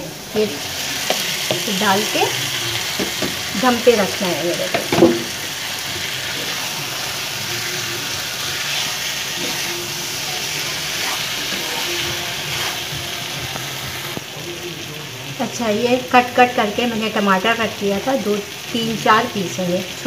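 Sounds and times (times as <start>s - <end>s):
vegetables sizzling in a wok: 0.0s - 20.0s
spatula scraping pan: 8.4s - 14.1s.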